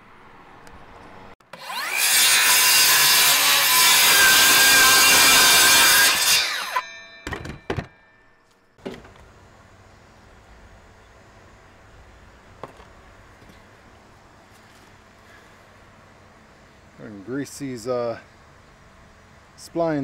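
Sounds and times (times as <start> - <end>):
circular saw cutting board: 1.4 - 7.6
sharp knocks: 7.2 - 8.1.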